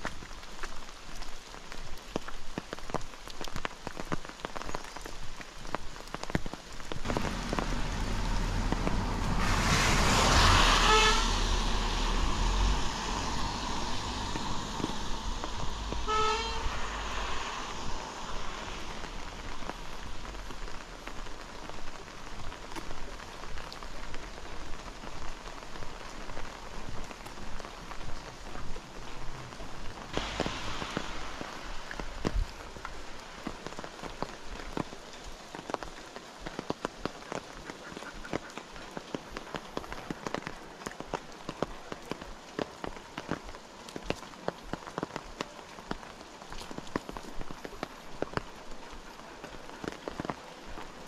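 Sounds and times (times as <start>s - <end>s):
rain falling on a road: 0.0s - 51.0s
vehicle passing with low rumble: 7.1s - 20.5s, 28.3s - 33.4s
vehicle horn toots: 10.6s - 11.6s, 16.0s - 17.0s.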